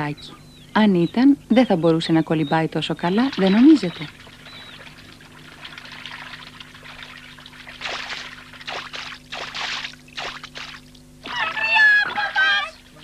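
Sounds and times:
water trickling: 3.0s - 11.2s
water splashes: 3.0s - 11.5s.

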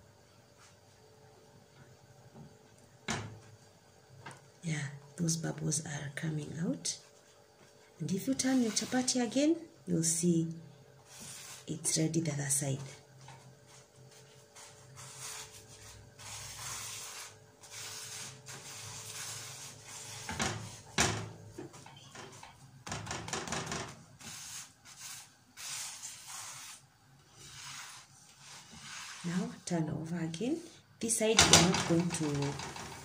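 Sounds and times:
spatula scraping a pan: 8.3s - 9.3s, 14.6s - 21.0s, 24.2s - 29.7s.

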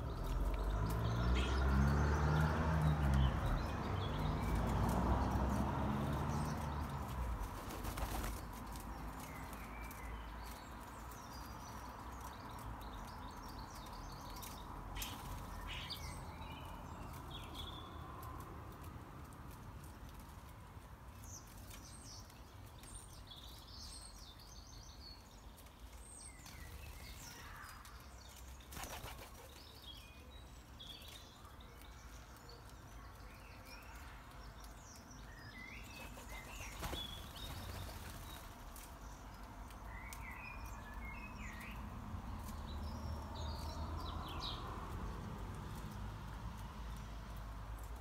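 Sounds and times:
small birds chirping: 0.0s - 48.0s
bird wing flaps: 7.4s - 8.8s, 28.7s - 29.6s, 36.0s - 38.6s.

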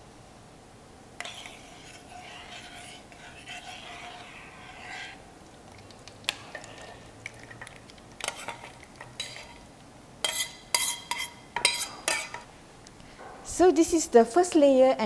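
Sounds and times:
liquid pouring: 4.6s - 9.6s.

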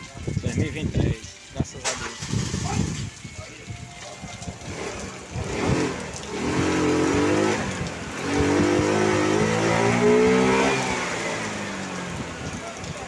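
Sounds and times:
heavy rain hissing: 0.6s - 13.0s
vehicle engine accelerating: 4.6s - 12.6s.

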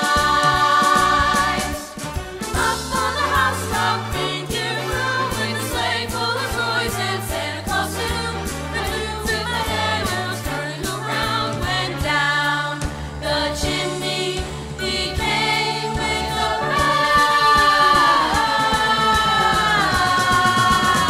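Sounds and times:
choir singing: 0.0s - 21.0s.

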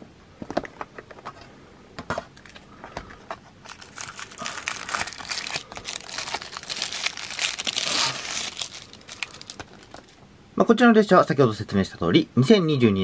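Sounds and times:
packaging crinkling and rustling: 2.4s - 10.2s.

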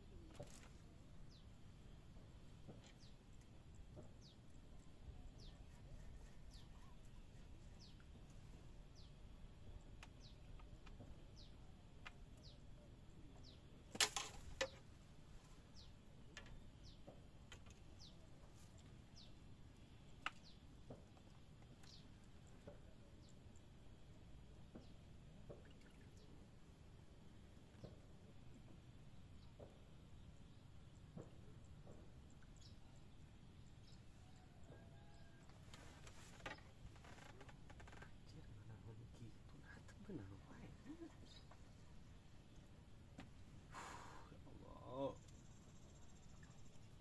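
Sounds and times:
small bird chirping: 36.5s - 41.9s.

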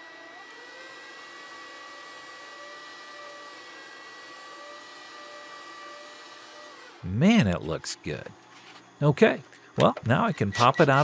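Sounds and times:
small electric motor whirring: 0.0s - 7.1s.

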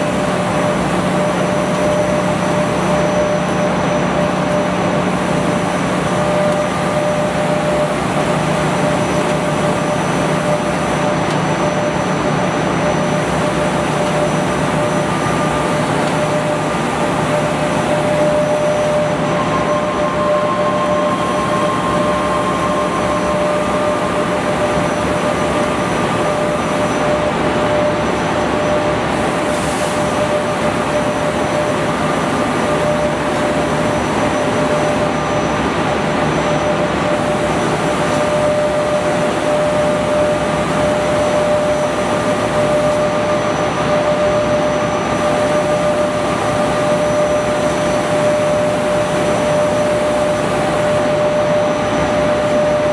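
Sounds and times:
constant machine whine: 0.0s - 52.9s
machine whirring: 0.0s - 52.9s.

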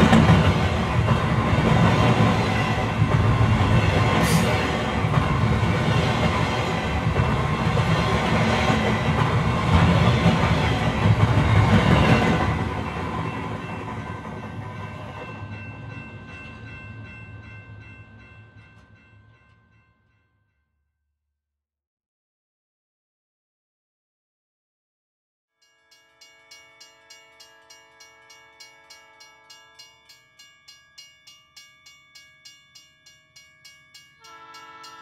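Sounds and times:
train rumbling on tracks: 0.0s - 19.2s.

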